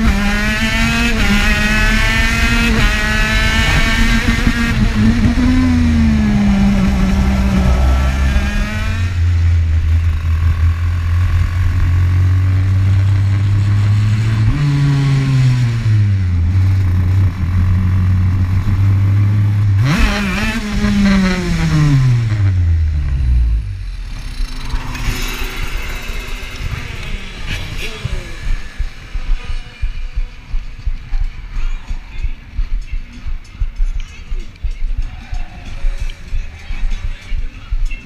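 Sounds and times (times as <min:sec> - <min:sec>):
kart engine running: 0:00.0 - 0:30.0.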